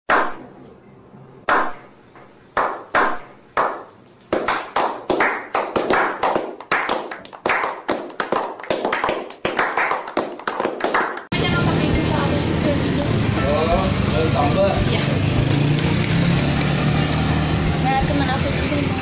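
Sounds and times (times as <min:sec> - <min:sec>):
slow hand claps with echo: 0:02.6 - 0:11.3
small group applause: 0:02.6 - 0:11.3.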